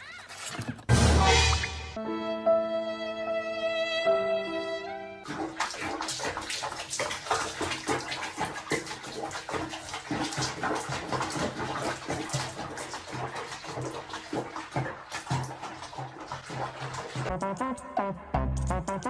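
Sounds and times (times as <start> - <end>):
water splashing in a basin: 5.2 - 17.3.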